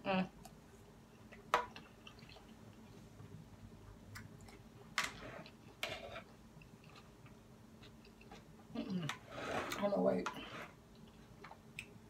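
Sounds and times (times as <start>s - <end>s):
person chewing salad: 1.2s - 3.0s, 5.4s - 9.2s.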